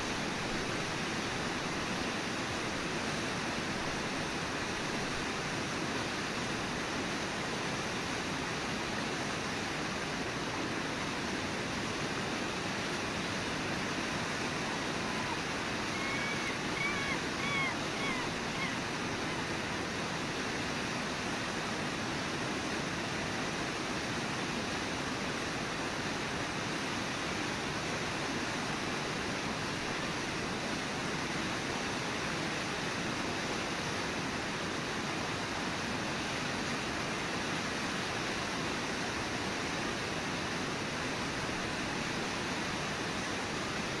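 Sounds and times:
waterfall rushing: 0.0s - 44.0s
faint high chirps: 15.0s - 18.9s.

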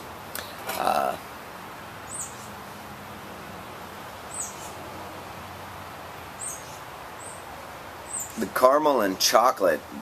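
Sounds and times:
faint background hiss: 0.0s - 10.0s
small bird chirping: 2.1s - 2.6s, 4.3s - 4.8s, 6.4s - 8.4s.

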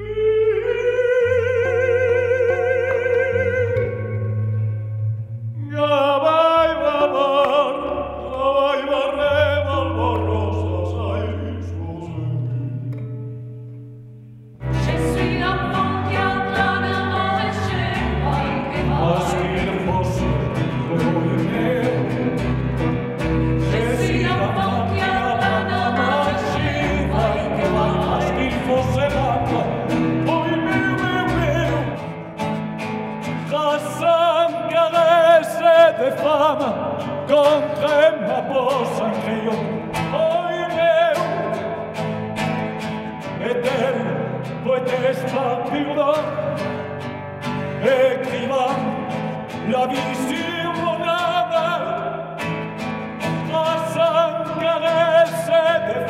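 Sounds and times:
voices singing harmonies: 0.0s - 4.7s, 5.3s - 13.2s, 14.6s - 32.2s, 33.4s - 42.1s
acoustic guitar: 0.0s - 56.0s
bass: 0.0s - 56.0s.

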